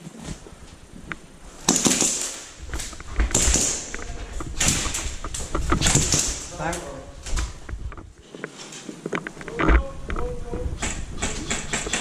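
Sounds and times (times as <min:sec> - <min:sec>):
clothing and gear rustling: 0:00.0 - 0:10.7
scrapes and low thuds: 0:02.5 - 0:11.5.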